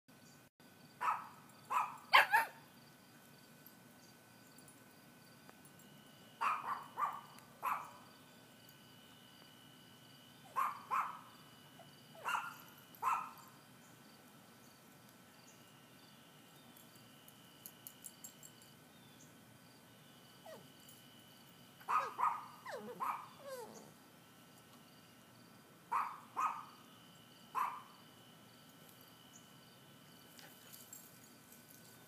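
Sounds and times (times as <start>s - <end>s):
dog whining and yipping: 20.4s - 20.7s, 21.9s - 23.9s.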